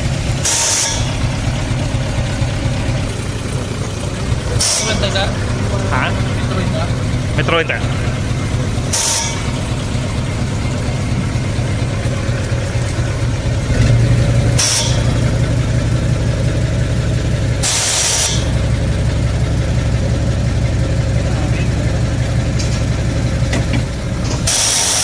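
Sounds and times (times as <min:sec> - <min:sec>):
diesel truck engine idling: 0:00.0 - 0:25.0
short air hisses: 0:17.6 - 0:18.5, 0:24.4 - 0:25.0.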